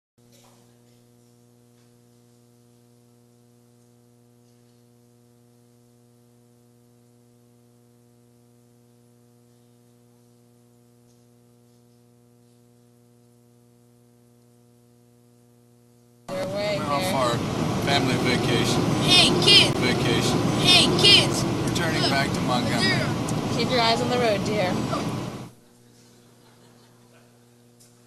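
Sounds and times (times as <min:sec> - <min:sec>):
faint mains hum: 0:00.2 - 0:28.0.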